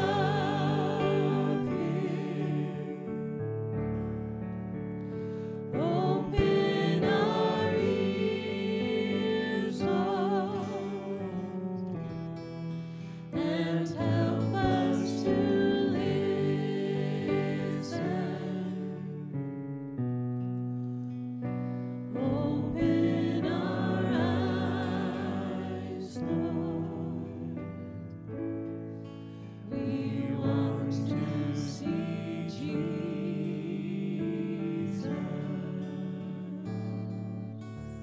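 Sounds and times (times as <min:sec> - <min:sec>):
person singing with vibrato: 0:05.8 - 0:11.7.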